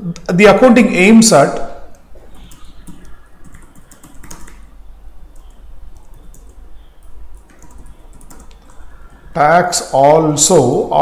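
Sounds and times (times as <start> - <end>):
computer keyboard typing: 1.9 - 9.4.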